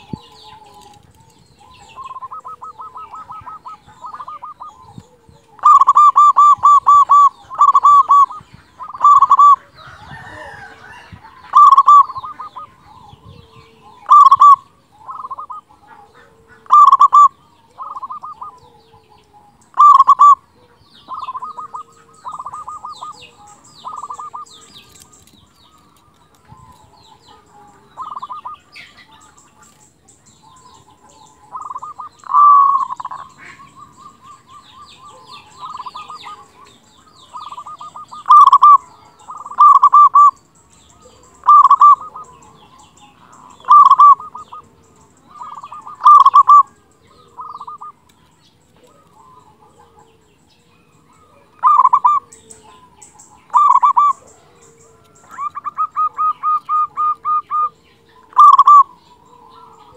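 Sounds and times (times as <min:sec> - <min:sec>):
dove cooing: 0:00.0 - 0:48.1, 0:48.7 - 0:59.9
small birds chirping: 0:00.0 - 0:59.9.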